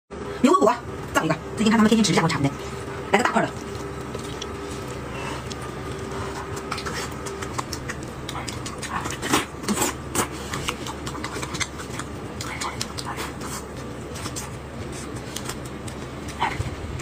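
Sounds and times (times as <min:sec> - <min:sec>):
wet chewing and lip-smacking: 0:02.7 - 0:17.0.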